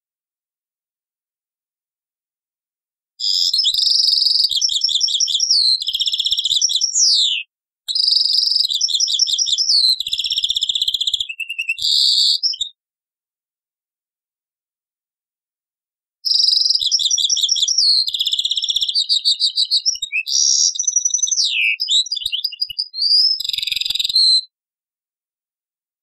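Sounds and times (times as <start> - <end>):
goldfinch singing: 3.3 - 12.6, 16.3 - 24.5.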